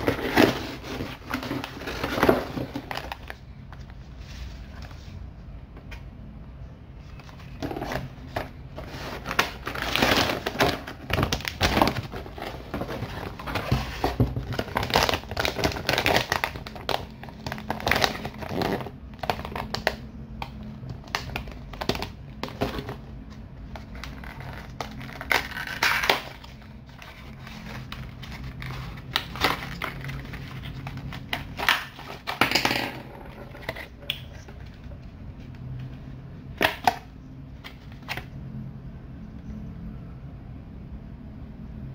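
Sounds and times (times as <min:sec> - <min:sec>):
plastic packaging crinkling: 0:08.9 - 0:20.0, 0:23.7 - 0:32.4.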